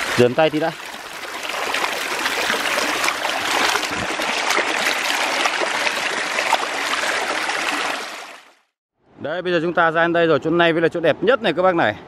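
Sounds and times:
splashing of wading feet: 0.0s - 8.4s
stream rushing: 0.0s - 8.6s.

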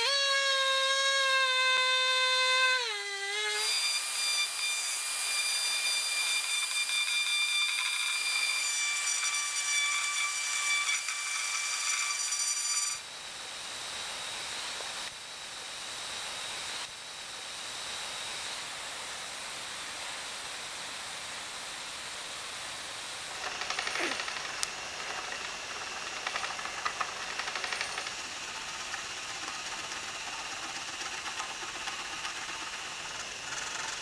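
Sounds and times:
pneumatic die grinder whine: 0.0s - 13.1s, 23.3s - 34.0s
scratches: 23.4s - 34.0s.

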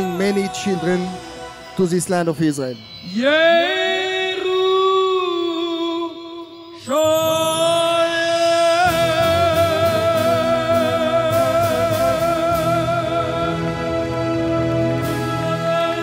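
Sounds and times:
musical backing with a beat: 8.5s - 16.0s.

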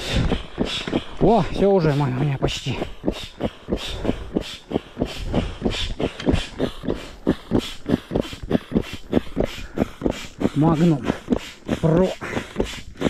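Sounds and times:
air pump hissing strokes: 0.0s - 13.0s.

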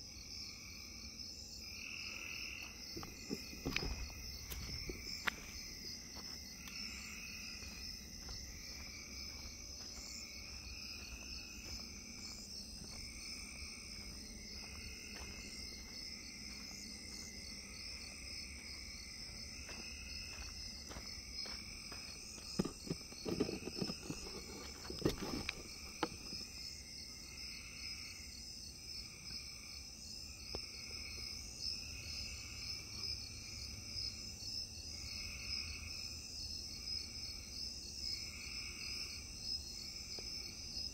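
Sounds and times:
insects chirring: 0.0s - 40.9s
knocks and rustles: 3.0s - 5.0s, 22.5s - 26.4s.

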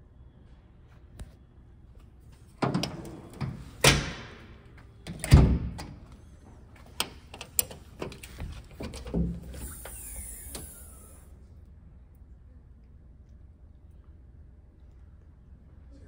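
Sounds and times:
metal doors banging shut: 2.6s - 6.0s, 7.0s - 9.9s
latch clicks: 6.9s - 9.7s.

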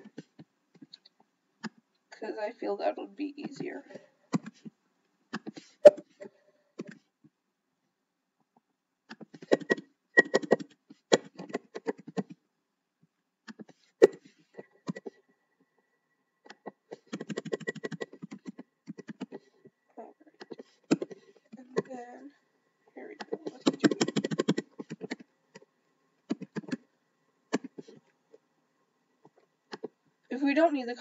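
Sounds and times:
computer keyboard typing: 9.1s - 12.4s, 16.5s - 19.5s, 23.2s - 25.2s.

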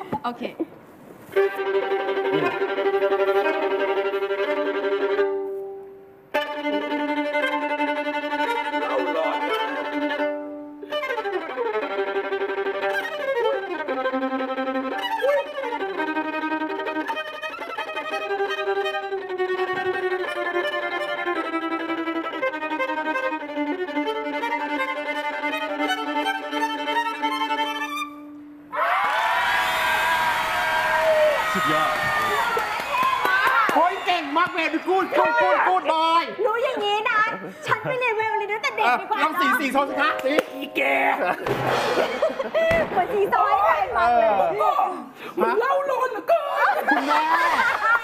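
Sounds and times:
solo violin bowed: 1.3s - 28.7s.

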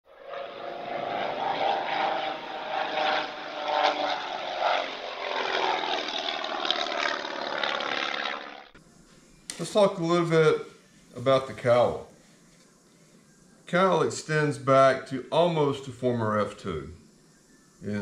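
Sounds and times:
propeller aircraft engine: 0.1s - 8.8s.

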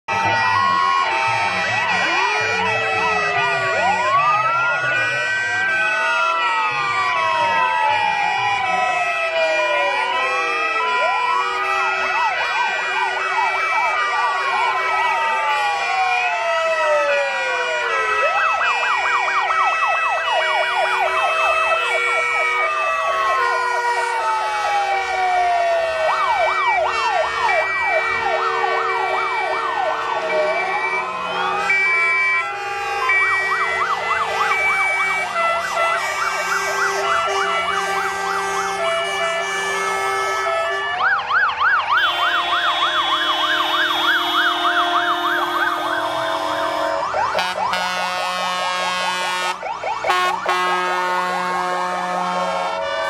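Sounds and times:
fast yelping sirens: 0.1s - 53.0s
rising and falling siren wails: 0.1s - 53.0s
steady siren tones: 0.1s - 53.0s.

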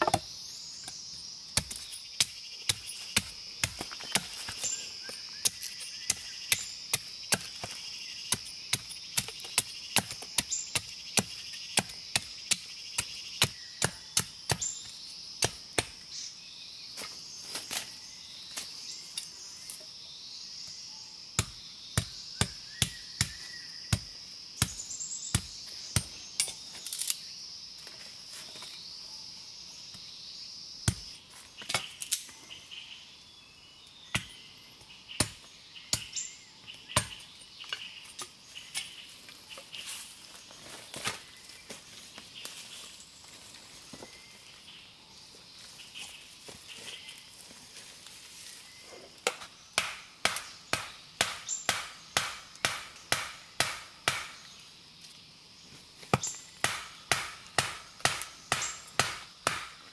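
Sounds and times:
insects buzzing: 0.0s - 59.9s
blade chopping bamboo: 49.3s - 54.4s, 56.1s - 59.8s.

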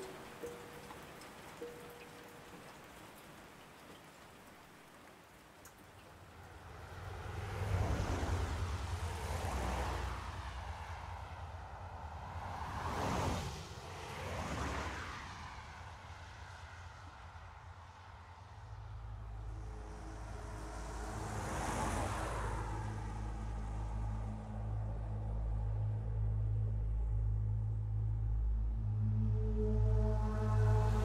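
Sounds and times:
rain hissing: 0.0s - 7.0s
steady rain: 0.0s - 15.7s, 18.9s - 25.7s
deep low rumble: 23.2s - 31.0s.

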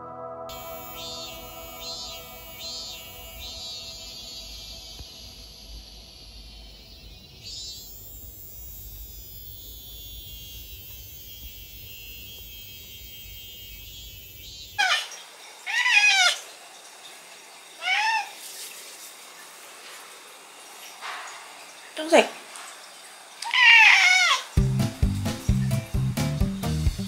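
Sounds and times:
cicadas buzzing: 0.5s - 27.0s
cat meowing: 14.8s - 16.4s, 17.8s - 18.4s, 23.4s - 24.6s.

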